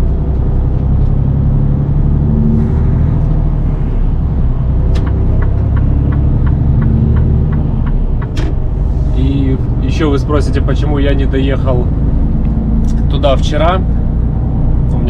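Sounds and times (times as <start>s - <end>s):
truck engine drone: 0.0s - 15.0s.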